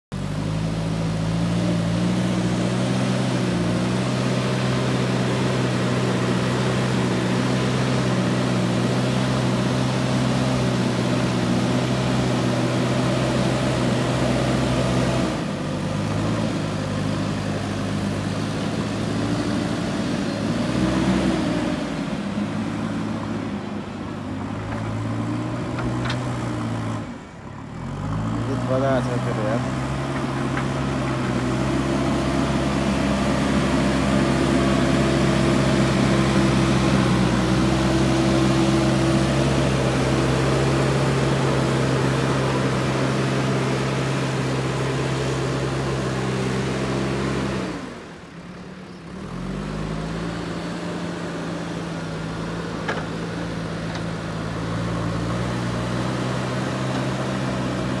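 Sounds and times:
diesel engine running under load: 0.1 - 58.0
loader bucket pushing soil: 0.2 - 58.0.

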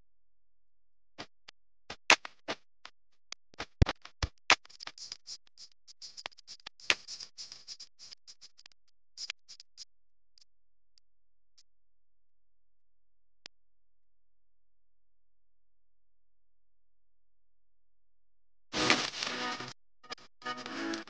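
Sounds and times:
sharp clicks and taps: 3.5 - 10.5.

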